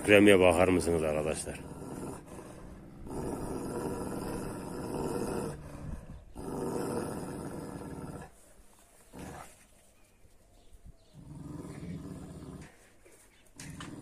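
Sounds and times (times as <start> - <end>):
dog growling deeply: 0.0 - 8.4, 9.1 - 9.6, 11.1 - 12.9, 13.6 - 14.0.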